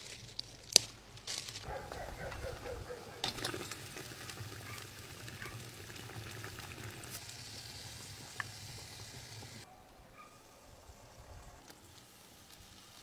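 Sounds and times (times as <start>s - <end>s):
sauce bubbling and sizzling in pot: 2.6s - 9.7s, 10.8s - 13.0s.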